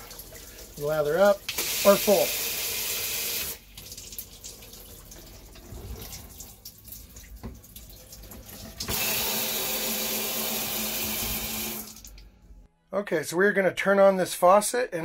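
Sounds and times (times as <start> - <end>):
shower water trickling: 0.0 - 12.4
shower spray hissing on tub: 0.8 - 3.6.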